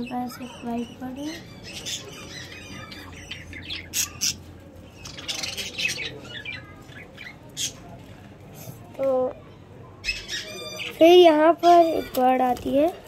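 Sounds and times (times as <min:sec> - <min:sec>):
budgerigars chattering and squawking: 0:00.0 - 0:07.9, 0:10.0 - 0:12.3.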